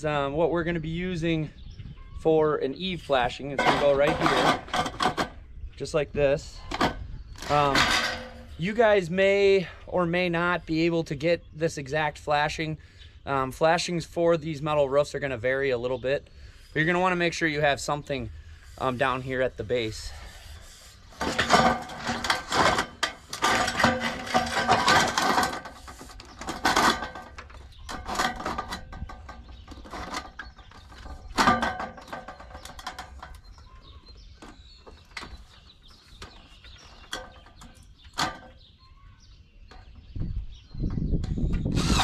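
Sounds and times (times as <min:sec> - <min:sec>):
sheet metal scraping and rattling: 0:02.8 - 0:05.4, 0:06.6 - 0:09.0, 0:18.7 - 0:33.8.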